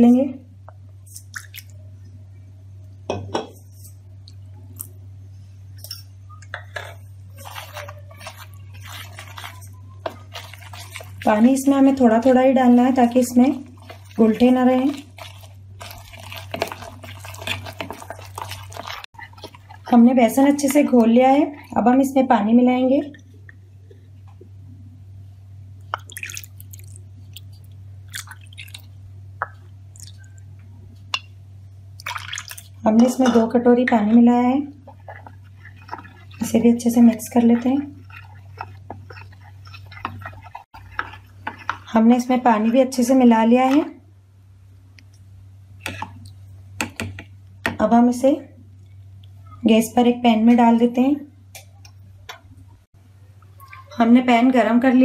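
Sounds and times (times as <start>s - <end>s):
steady low hum: 0.0s - 55.0s
whisk scraping plastic bowl: 6.6s - 21.8s, 34.8s - 43.9s
water pouring into batter: 32.0s - 32.8s.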